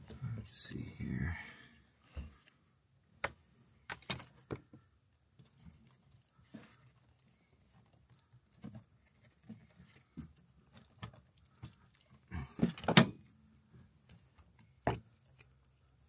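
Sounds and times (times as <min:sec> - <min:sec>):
clicks and knocks of hose handling: 0:12.6 - 0:13.2.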